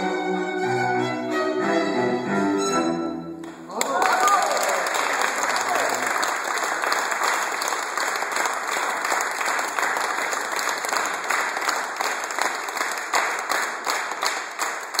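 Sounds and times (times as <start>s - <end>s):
audience applauding: 3.4s - 15.0s.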